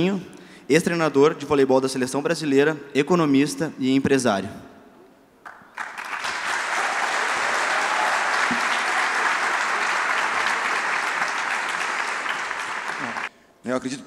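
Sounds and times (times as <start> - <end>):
audience applauding: 5.4 - 13.3.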